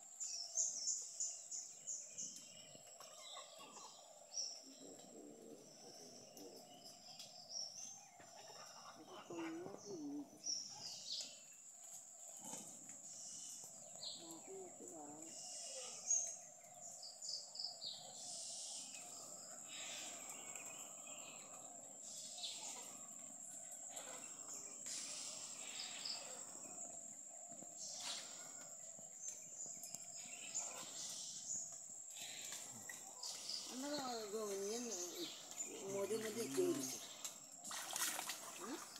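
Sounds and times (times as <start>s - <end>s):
bird calls: 0.0s - 38.9s
water splashes and drips: 32.4s - 38.9s.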